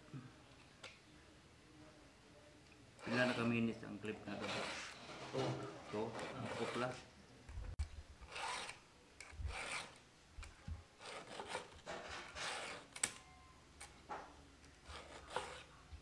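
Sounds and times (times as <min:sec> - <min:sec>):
file rasping on chain: 0:03.0 - 0:03.5, 0:04.3 - 0:05.0, 0:06.0 - 0:07.0, 0:08.3 - 0:08.8, 0:09.5 - 0:10.0, 0:11.0 - 0:12.9, 0:14.8 - 0:15.7.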